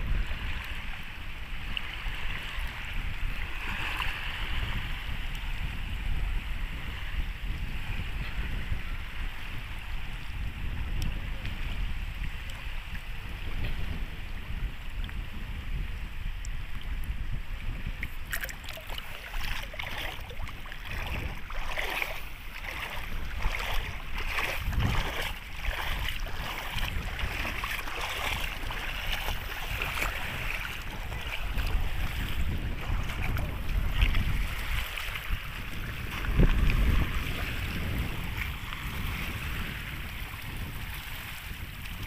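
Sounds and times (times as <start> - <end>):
sea water splashing at shore: 0.0 - 5.8, 17.6 - 42.0
wind buffeting microphone: 0.0 - 42.0.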